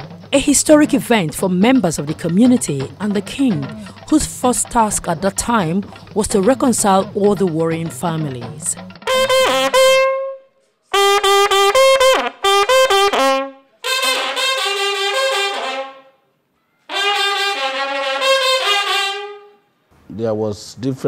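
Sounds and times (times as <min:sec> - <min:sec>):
brass horn blown: 0:09.0 - 0:16.2, 0:16.9 - 0:19.7.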